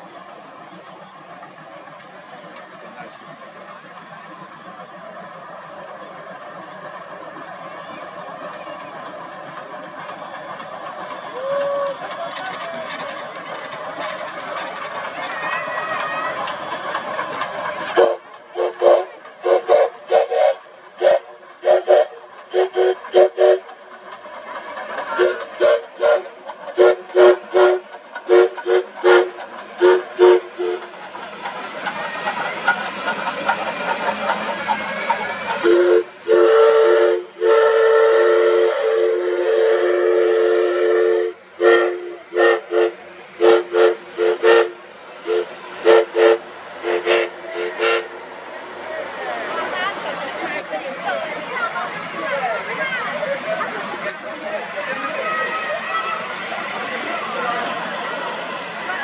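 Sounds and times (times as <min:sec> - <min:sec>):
steam hiss: 0:00.0 - 0:59.0
steam whistle toots: 0:11.3 - 0:12.0, 0:18.0 - 0:23.7, 0:25.2 - 0:30.9, 0:35.6 - 0:48.2.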